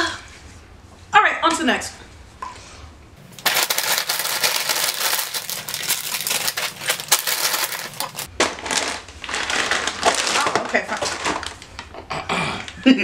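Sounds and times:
plastic bags crinkling: 3.2s - 12.0s.

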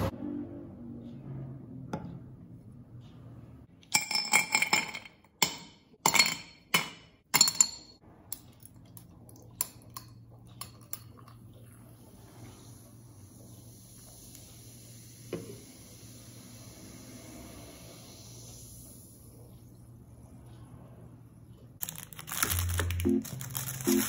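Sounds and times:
glassware clinking: 3.9s - 8.0s.

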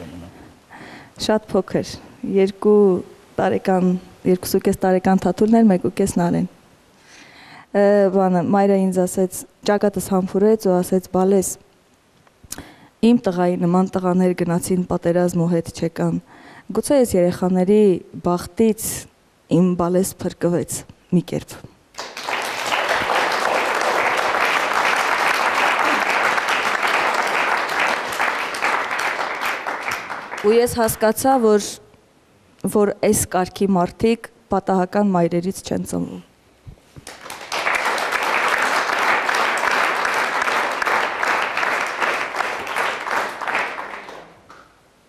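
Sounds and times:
audience applauding: 21.9s - 30.8s, 37.0s - 44.7s.

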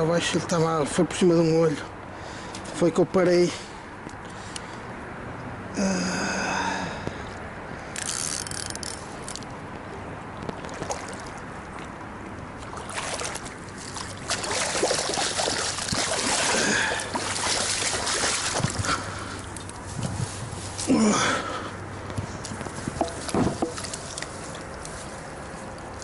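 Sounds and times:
fish splashing in water: 12.6s - 19.4s
grass rustling: 12.6s - 21.0s, 21.9s - 26.0s.

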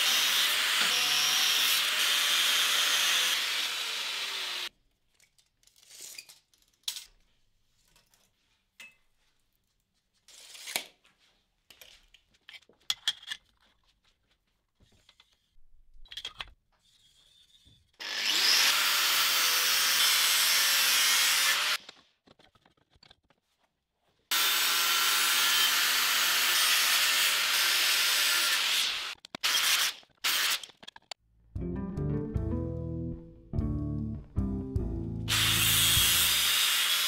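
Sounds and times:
angle grinder cutting steel: 0.0s - 4.7s, 18.0s - 21.8s, 24.3s - 30.6s, 35.3s - 37.0s.

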